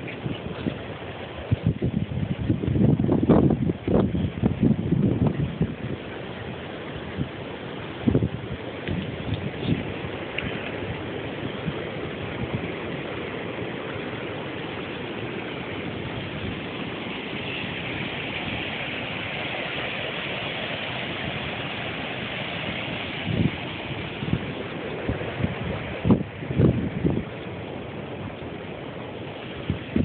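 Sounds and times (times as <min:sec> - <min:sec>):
wind thumps on microphone: 0:00.0 - 0:06.1, 0:08.0 - 0:13.0, 0:21.0 - 0:28.5, 0:29.5 - 0:30.0
water rushing over weir: 0:00.0 - 0:30.0.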